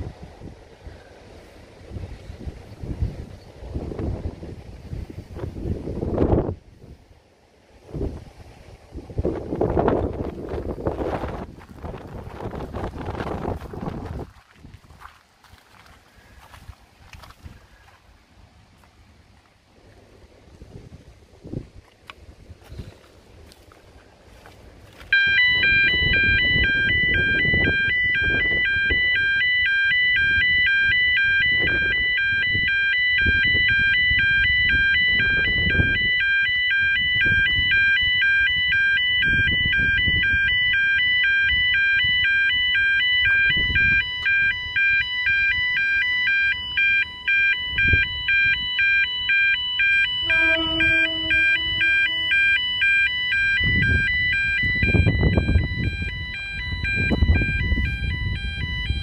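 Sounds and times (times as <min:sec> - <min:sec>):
wind buffeting microphone: 0:00.0 - 0:18.0, 0:19.7 - 0:59.0
two-tone warbling alarm: 0:25.1 - 0:59.0.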